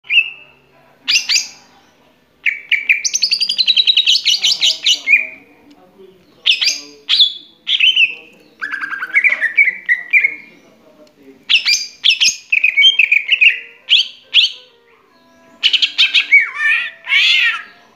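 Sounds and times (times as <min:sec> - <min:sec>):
bird singing chirps and whistles: 0:00.0 - 0:00.5, 0:02.4 - 0:05.4, 0:11.5 - 0:17.9.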